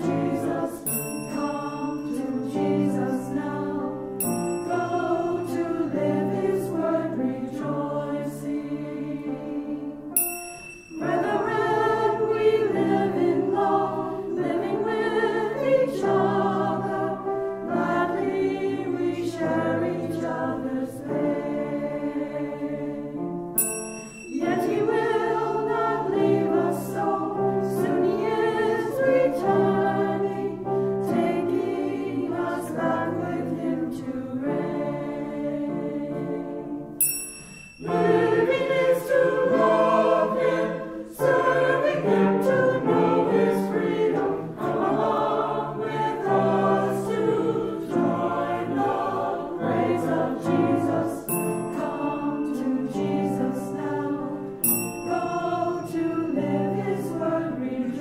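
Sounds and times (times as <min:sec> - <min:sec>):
choir singing a hymn: 0:00.0 - 0:37.1, 0:37.8 - 0:58.0
bright bell-like ring: 0:00.8 - 0:02.8, 0:04.0 - 0:06.4, 0:10.1 - 0:14.3, 0:23.6 - 0:27.0, 0:37.0 - 0:41.2, 0:51.3 - 0:53.0, 0:54.5 - 0:57.0.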